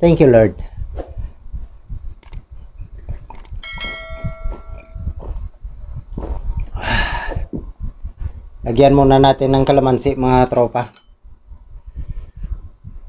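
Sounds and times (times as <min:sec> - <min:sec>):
sharp clicks: 0:02.1 - 0:02.5, 0:03.3 - 0:03.6
notification bell ding: 0:03.6 - 0:05.0.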